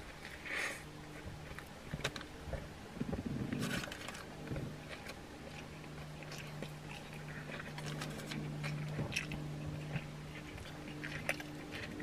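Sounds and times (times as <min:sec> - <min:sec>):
low steady hum: 0:00.0 - 0:12.0
wet chewing mouth smacks: 0:04.9 - 0:12.0.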